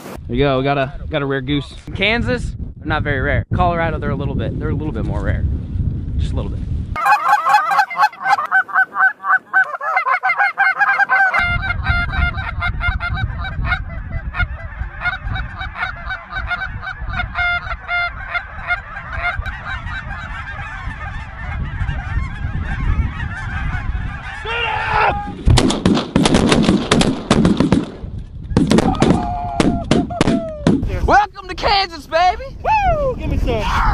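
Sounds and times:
low wind rumble: 0.0 - 33.9
geese honking: 7.0 - 24.9
shotgun blasts: 25.5 - 30.9.

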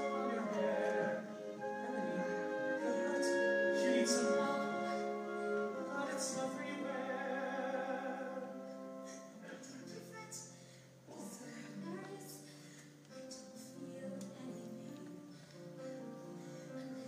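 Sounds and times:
person singing: 0.0 - 9.8
soft orchestral accompaniment: 0.0 - 17.0.

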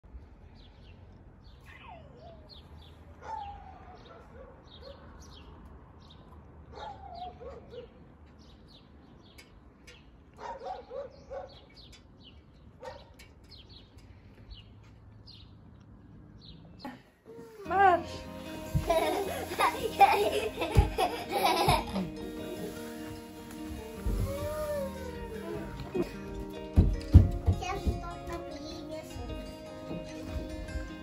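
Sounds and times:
small birds chirping: 0.4 - 17.1
dog barking: 3.2 - 5.1, 6.7 - 8.0, 10.4 - 11.7, 12.8 - 13.1.

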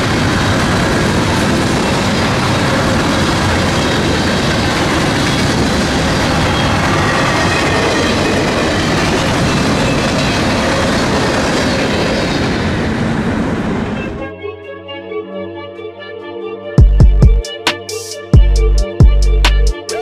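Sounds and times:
train wheels rushing on rail: 0.0 - 14.2
high wheel squeal: 4.8 - 13.0.

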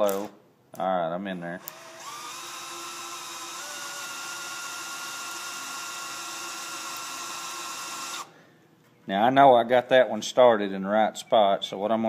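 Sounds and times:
electric drill boring into metal: 1.6 - 8.3.

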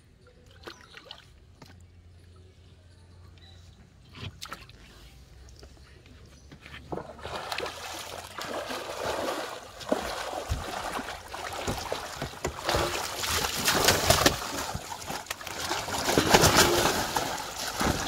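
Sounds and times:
water splashing off net: 6.9 - 18.0
fish flapping in wet net: 7.6 - 18.0
fish and net dropping on tarp: 11.6 - 18.0.

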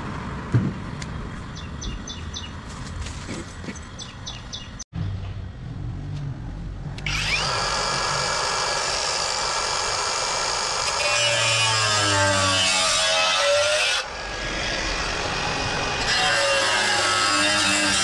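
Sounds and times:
angle grinder grinding wall: 7.0 - 18.0.

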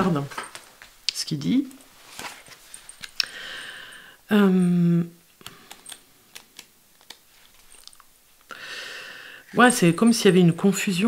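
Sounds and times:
woman humming hesitation: 4.3 - 5.2.

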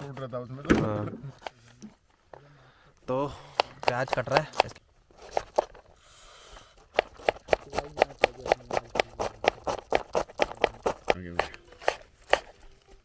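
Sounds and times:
knife chopping on cutting board: 3.5 - 5.6, 6.9 - 12.5.

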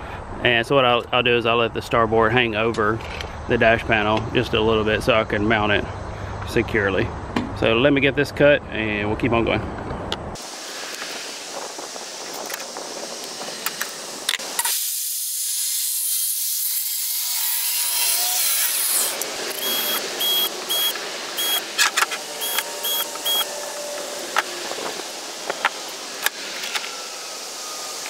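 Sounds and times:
steady high hiss: 10.4 - 16.9, 17.7 - 28.0
cordless drill whining: 17.6 - 25.6.

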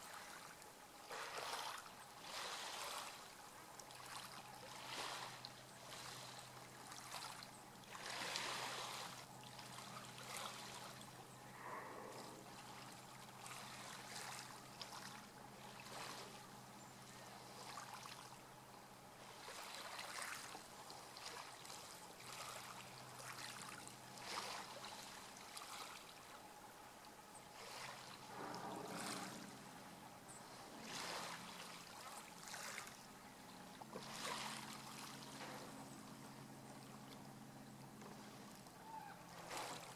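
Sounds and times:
small waves lapping: 0.0 - 39.9
faint low hum: 5.4 - 39.9.

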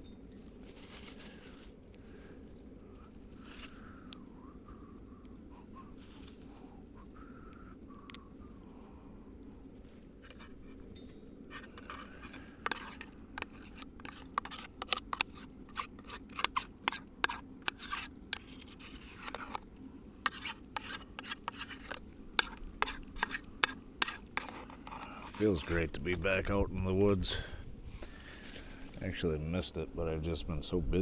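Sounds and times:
steady low hum: 0.0 - 31.0
utensil scraping cooking pan: 11.5 - 26.2.

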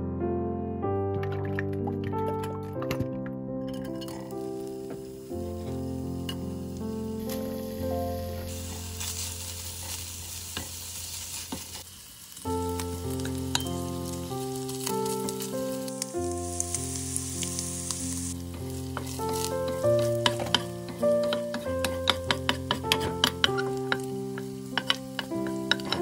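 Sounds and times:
background music with held notes: 0.0 - 10.8, 12.5 - 26.0
bacon sizzling in a frying pan: 3.7 - 26.0
wooden spatula scraping a pan: 18.6 - 26.0.

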